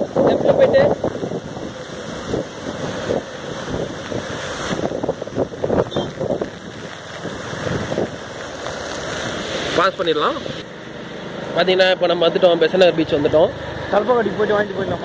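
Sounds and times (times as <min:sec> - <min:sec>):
wind buffeting microphone: 0:00.0 - 0:09.0
hiss of wet road and rain: 0:00.0 - 0:15.0.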